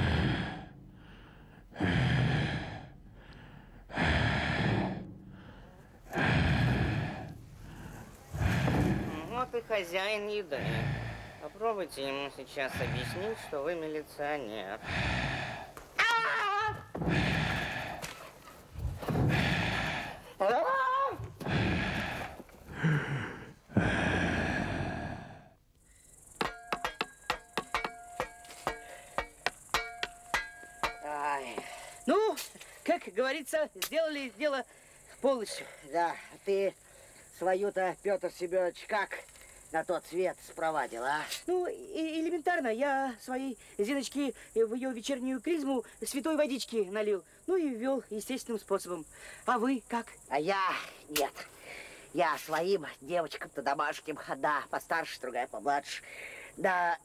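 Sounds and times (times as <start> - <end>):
creature breathing heavily: 0.0 - 9.5, 10.5 - 11.6, 12.6 - 13.8, 14.8 - 15.8, 16.7 - 20.4, 21.3 - 25.6
hammering on a nail: 26.4 - 31.0.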